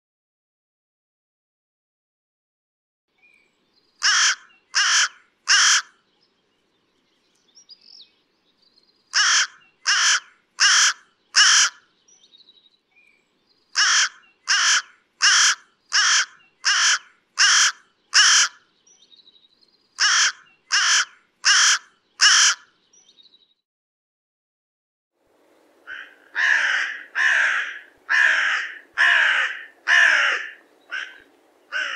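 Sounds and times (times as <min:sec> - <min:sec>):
crow cawing: 0:04.0 - 0:06.0, 0:09.1 - 0:11.9, 0:13.8 - 0:18.7, 0:20.0 - 0:22.7, 0:25.9 - 0:31.9.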